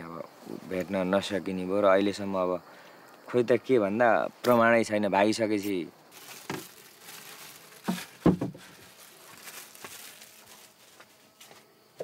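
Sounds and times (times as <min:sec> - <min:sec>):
soft rustling: 0:06.1 - 0:11.7
footsteps on earthen floor: 0:07.8 - 0:11.7
knocks: 0:07.9 - 0:08.6.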